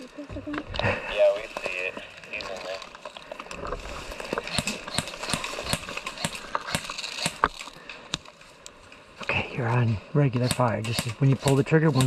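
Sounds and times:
sharp clacks: 0:10.3 - 0:12.0.

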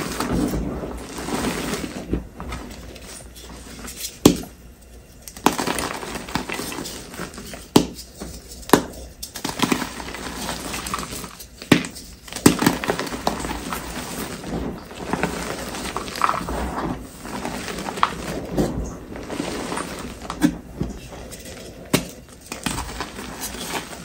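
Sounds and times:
gritty chalk crunching: 0:05.3 - 0:24.0.

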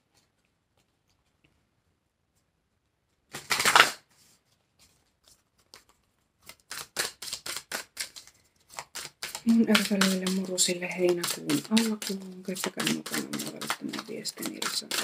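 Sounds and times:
cards shuffling: 0:03.3 - 0:15.0.

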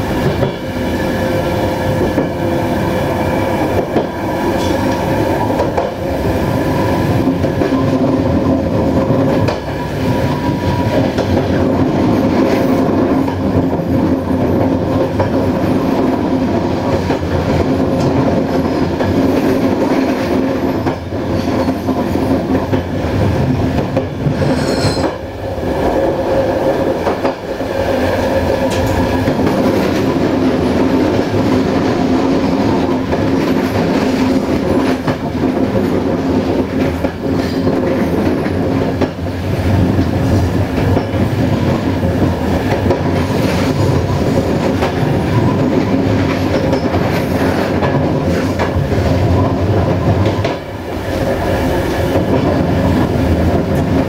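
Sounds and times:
train rolling on track: 0:00.0 - 0:54.0
high wavering squeal: 0:24.4 - 0:25.3.

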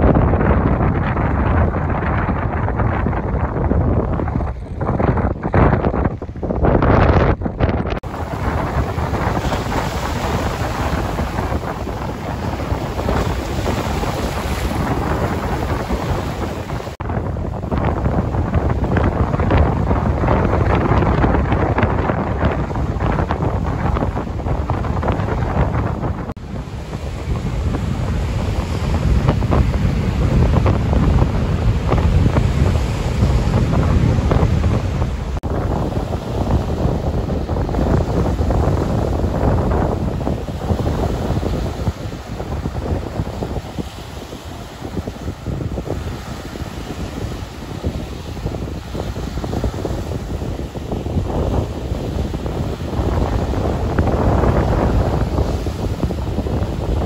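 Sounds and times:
waves breaking on shore: 0:00.0 - 0:57.0
wind buffeting microphone: 0:00.0 - 0:57.0.

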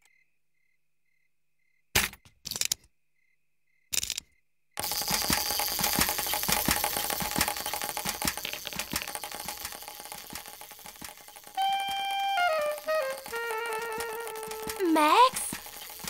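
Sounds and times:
wind-up toy clicking and whirring: 0:04.0 - 0:16.0
held musical note: 0:11.6 - 0:15.6.

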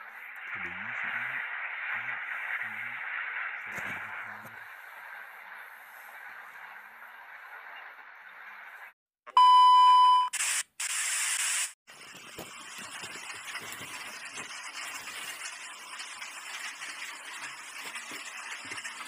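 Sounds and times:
television static hiss: 0:00.0 - 0:08.0.

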